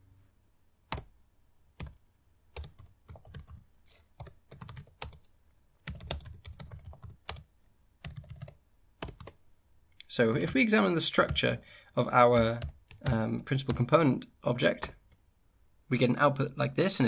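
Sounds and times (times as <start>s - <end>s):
typing on a keyboard: 2.6s - 9.4s, 12.4s - 13.9s.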